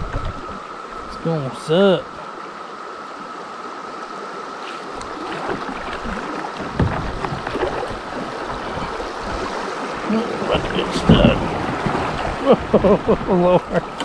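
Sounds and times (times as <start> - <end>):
creek water rushing: 0.0 - 14.0
paddle splashes and knocks: 4.7 - 14.0.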